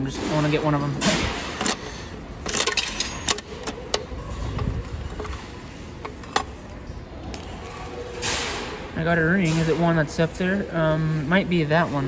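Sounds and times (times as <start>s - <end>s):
coin mechanism clicks and clunks: 0.0s - 6.9s.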